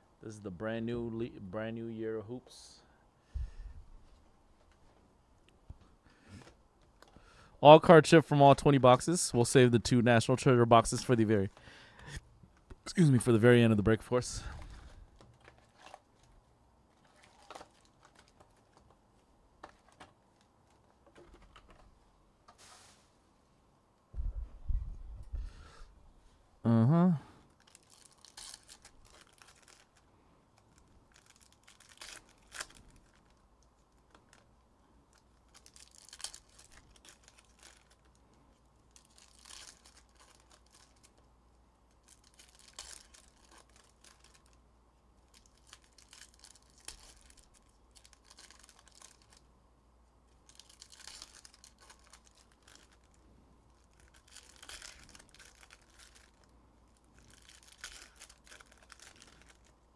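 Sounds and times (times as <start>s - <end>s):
wrapper tearing and crinkling: 14.4s - 16.3s, 17.0s - 18.9s, 27.5s - 34.5s, 35.1s - 38.2s, 38.8s - 41.3s, 41.9s - 44.6s, 45.2s - 49.5s, 50.3s - 59.9s.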